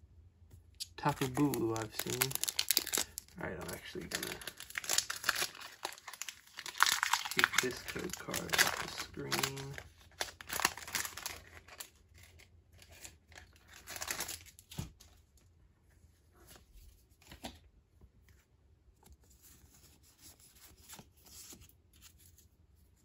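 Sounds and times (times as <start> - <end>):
foil wrapper tearing and crinkling: 1.0 - 14.7.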